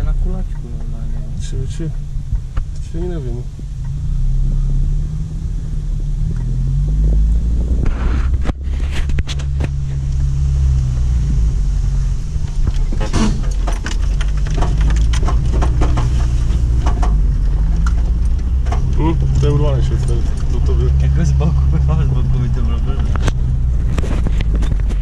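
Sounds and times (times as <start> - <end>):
tyres rumbling over dirt: 0.0 - 25.0
vehicle engine running: 0.0 - 25.0
knocks and rattles over bumps: 12.3 - 21.5.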